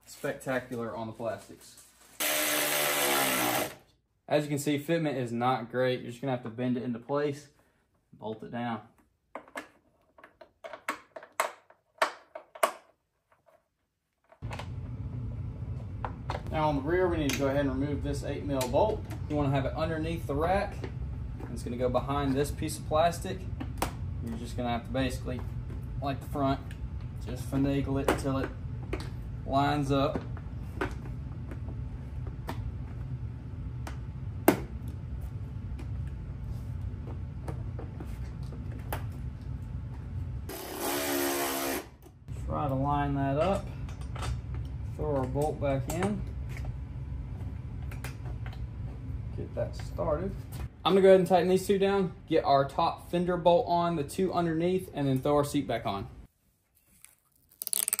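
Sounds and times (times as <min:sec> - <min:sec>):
plastic panels clicking and knocking: 0:09.3 - 0:13.5
steady low hum: 0:14.4 - 0:40.5, 0:42.2 - 0:56.3.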